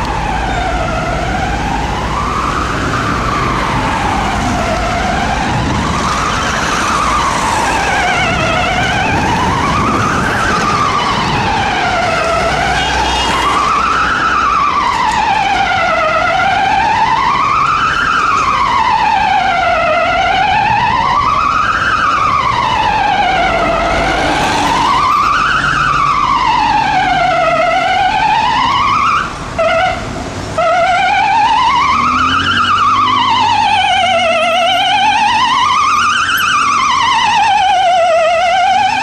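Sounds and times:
ambulance siren wailing: 0.0 - 39.0
traffic rumble: 0.0 - 39.0.

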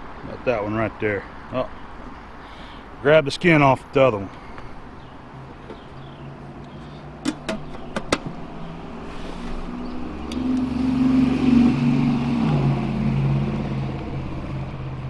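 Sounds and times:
metal lid clinking: 7.2 - 8.2
passing vehicle engine drone: 8.3 - 15.0.

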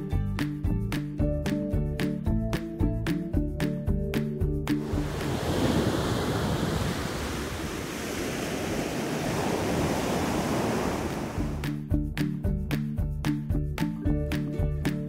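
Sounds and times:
background music: 0.0 - 5.8, 11.4 - 15.0
ocean surf breaking: 4.8 - 11.7.

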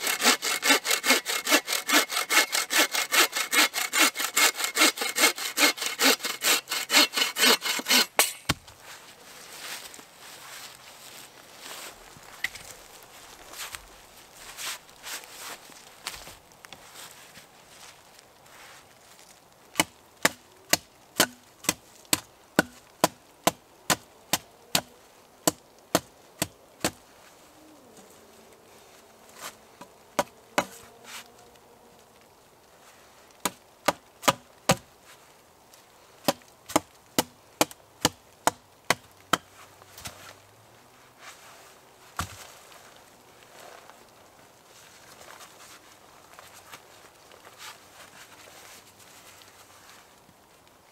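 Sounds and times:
hatchet chopping wood: 0.0 - 8.6, 19.8 - 27.0, 33.4 - 34.8, 36.2 - 39.5.

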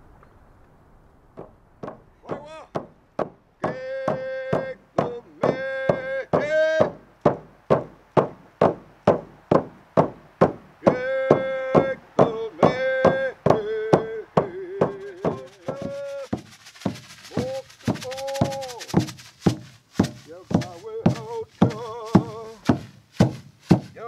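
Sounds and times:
high hiss: 0.0 - 24.0
hand drums beating: 2.7 - 24.0
men chanting in held notes: 3.6 - 7.1, 10.8 - 16.3, 20.2 - 22.9.

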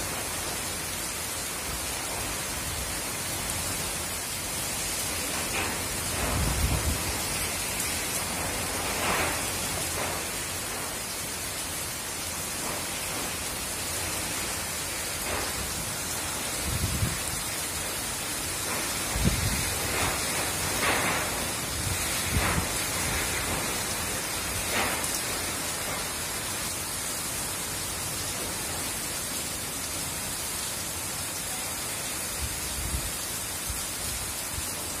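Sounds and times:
wind and heavy rain hiss: 0.0 - 35.0
wind gusts thumping microphone: 1.5 - 11.8, 12.5 - 26.8, 32.3 - 34.9.

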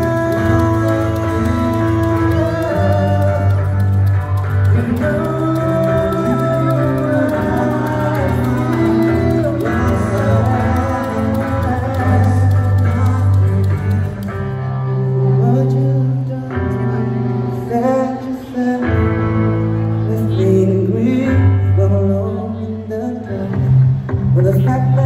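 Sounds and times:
held bass notes: 0.0 - 17.7
electric guitar: 0.0 - 25.0
man singing: 0.0 - 25.0.

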